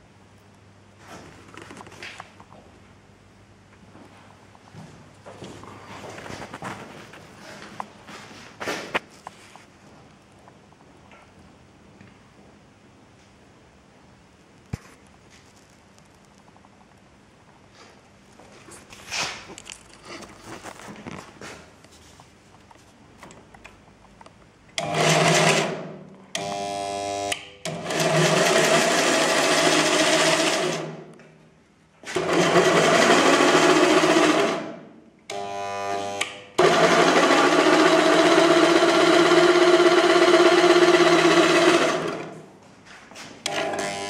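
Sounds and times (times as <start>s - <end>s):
electric jigsaw running: 24.8s - 25.8s, 26.4s - 31.0s, 32.1s - 42.4s, 43.5s - 44.0s.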